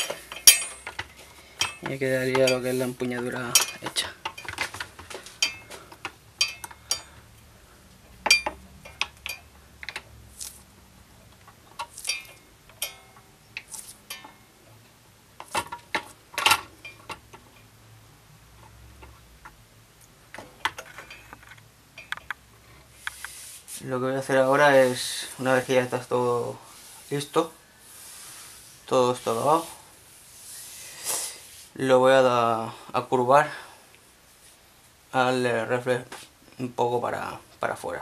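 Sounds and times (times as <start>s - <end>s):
small tools clicking and clinking: 0.0s - 7.3s, 8.2s - 10.7s, 11.3s - 14.5s, 15.4s - 17.7s, 18.6s - 22.4s.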